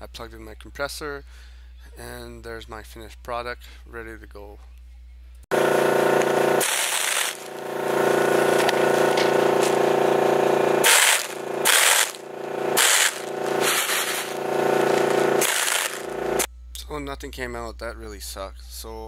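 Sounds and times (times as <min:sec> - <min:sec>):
air compressor humming: 0:05.5 - 0:16.5
air blow gun blasts: 0:05.6 - 0:16.5.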